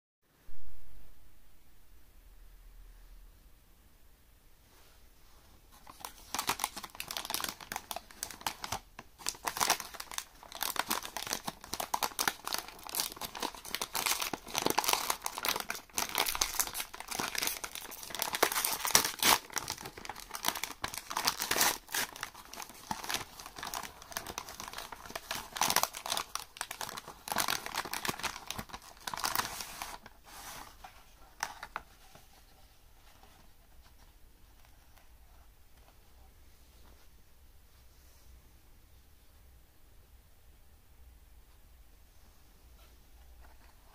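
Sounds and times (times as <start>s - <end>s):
plastic wrapper crinkling: 5.7s - 32.4s.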